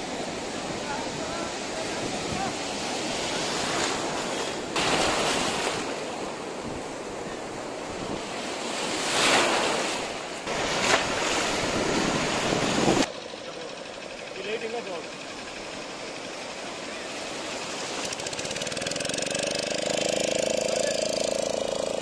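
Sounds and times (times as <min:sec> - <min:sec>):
foam washing through shallow water: 0:00.0 - 0:07.0
waves breaking: 0:00.0 - 0:13.1, 0:14.4 - 0:22.0.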